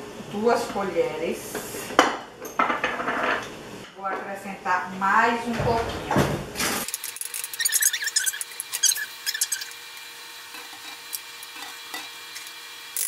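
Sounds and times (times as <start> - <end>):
spoon scraping a bowl: 6.9 - 9.7, 10.5 - 12.5.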